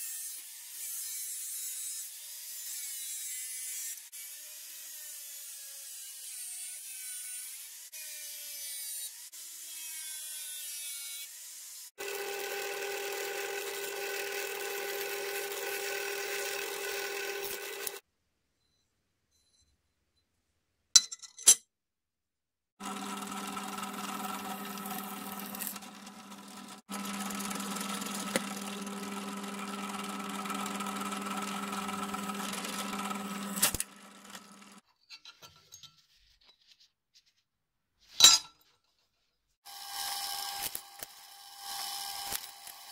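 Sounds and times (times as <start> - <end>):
angle grinder cutting steel: 0.0 - 18.0, 22.8 - 34.8, 39.7 - 42.9
drill press boring steel: 12.0 - 18.0, 22.8 - 34.8, 39.7 - 42.9
drill running: 12.0 - 18.0, 22.8 - 34.8, 39.7 - 42.9.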